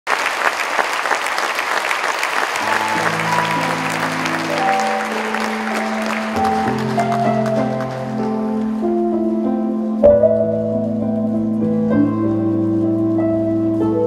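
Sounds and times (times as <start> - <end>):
audience applauding: 0.0 - 8.8
music with long held chords: 2.6 - 14.0.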